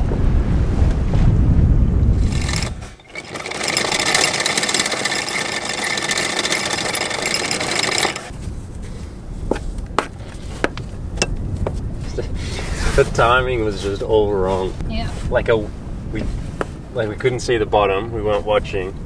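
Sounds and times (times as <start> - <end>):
anchor chain rattling out: 2.2 - 8.4
chain links clinking: 2.3 - 8.3.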